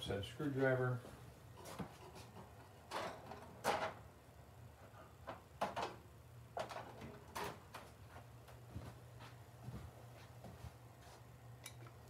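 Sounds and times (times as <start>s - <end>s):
steady low hum: 0.0s - 12.0s
tools clunking and scraping: 1.6s - 4.0s.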